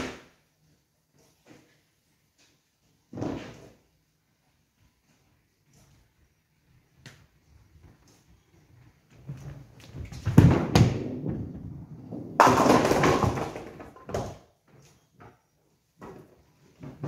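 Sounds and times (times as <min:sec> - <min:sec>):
bowling ball thudding and rolling: 0:09.9 - 0:14.6
bowling pins clattering: 0:10.1 - 0:14.5.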